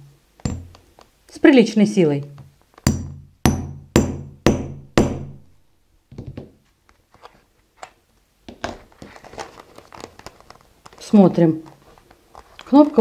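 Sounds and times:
hammer striking steel punch: 0.4 - 0.8, 2.9 - 5.5.

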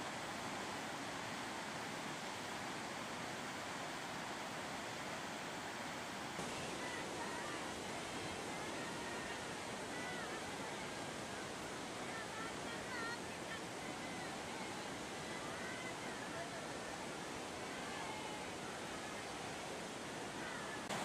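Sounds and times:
steady rushing noise: 0.0 - 16.1.

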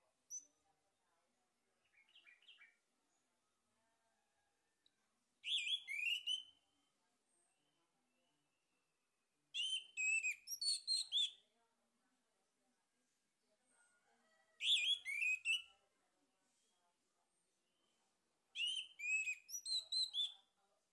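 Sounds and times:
thrush singing whistled notes: 5.4 - 6.5, 9.6 - 11.4, 14.6 - 15.6, 18.6 - 20.3.

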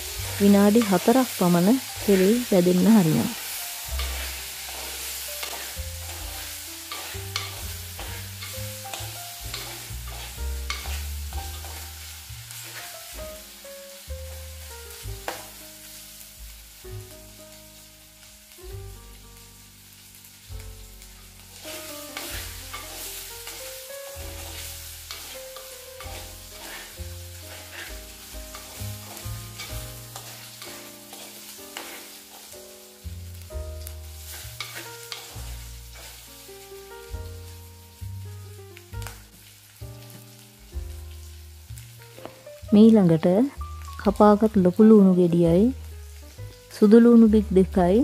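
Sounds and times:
chicken sizzling in oil: 0.0 - 48.0
soft background music: 0.0 - 48.0.

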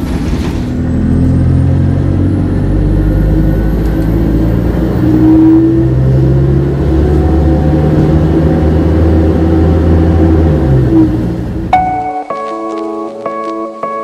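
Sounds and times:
bus diesel engine running: 0.0 - 12.1.

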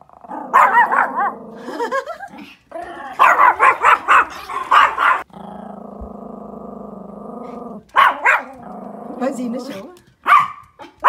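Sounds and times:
dog growling low: 0.0 - 3.3, 4.0 - 9.9
dogs barking: 0.4 - 1.9, 3.1 - 5.3, 7.8 - 8.7, 10.2 - 11.0.

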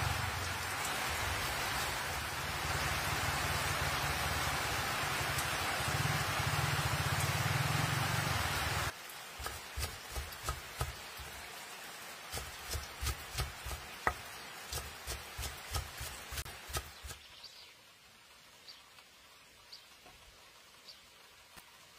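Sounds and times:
rain on a metal roof: 0.0 - 21.9
knife chopping on wooden board: 9.4 - 11.0, 12.3 - 17.2.

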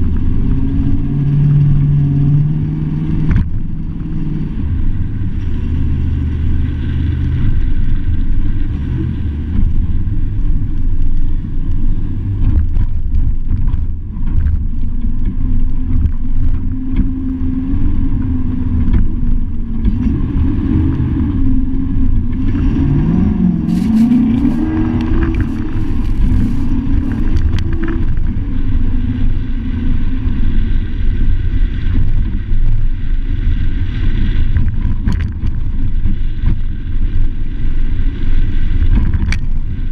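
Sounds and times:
truck road and wind rumble: 0.0 - 39.9
truck engine revving: 19.8 - 28.1.

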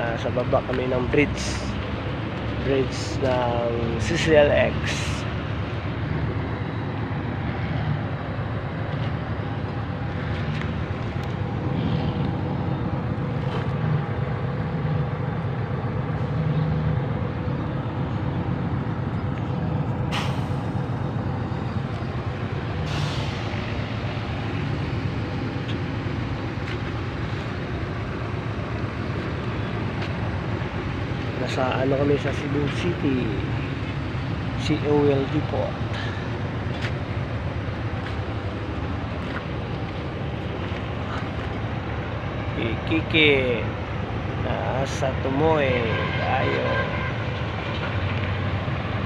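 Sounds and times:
diesel truck engine idling: 0.0 - 45.9
short air hisses: 20.1 - 20.7, 22.8 - 23.5.

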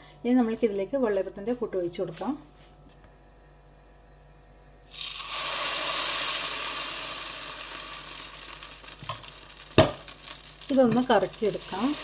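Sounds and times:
batter sizzling in hot pan: 4.8 - 12.0.

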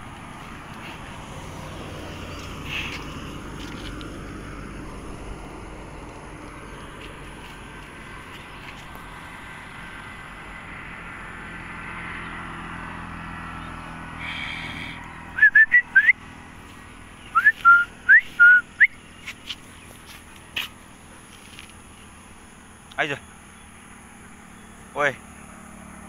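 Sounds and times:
person whistling: 15.4 - 16.2, 17.3 - 19.0.

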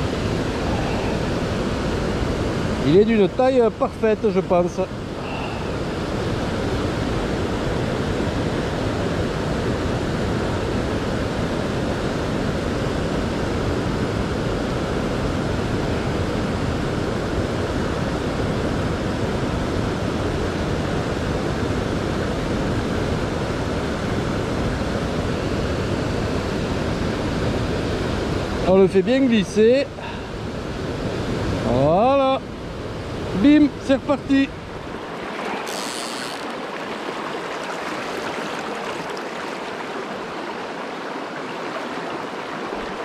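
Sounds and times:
fast-flowing river rushing: 0.0 - 12.4, 27.6 - 43.0.

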